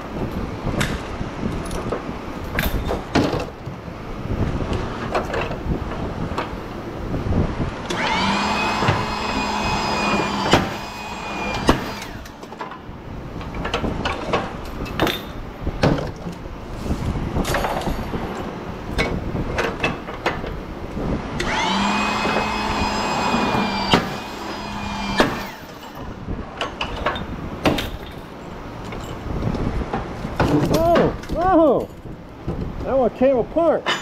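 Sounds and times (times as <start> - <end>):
metal parts clanking: 0.8 - 3.6, 13.4 - 16.4, 17.4 - 20.6, 25.4 - 29.3, 30.4 - 32.1
small electric motor spinning: 7.9 - 12.4, 21.4 - 26.1.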